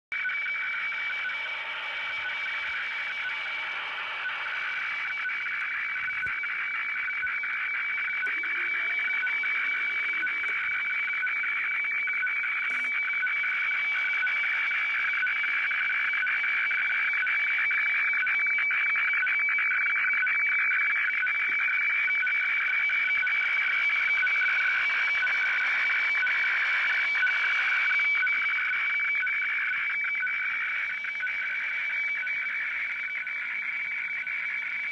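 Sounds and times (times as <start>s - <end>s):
radiofax signal tones warbling: 0.2s - 17.2s
radio static hiss: 8.0s - 13.1s.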